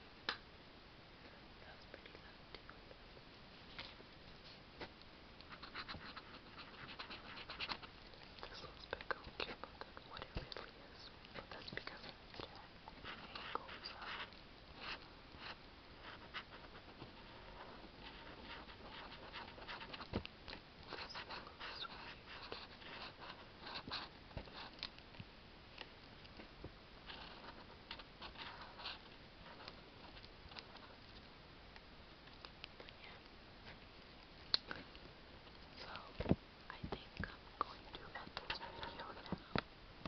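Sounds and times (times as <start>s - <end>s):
marker scratching on paper: 5.5s - 7.9s, 13.0s - 20.1s, 20.9s - 24.7s.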